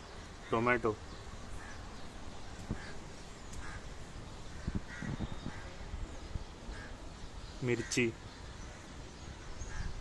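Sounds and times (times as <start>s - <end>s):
outdoor background noise: 0.0s - 10.0s
crow cawing: 3.6s - 3.9s, 4.5s - 5.8s, 6.7s - 7.0s, 8.7s - 10.0s.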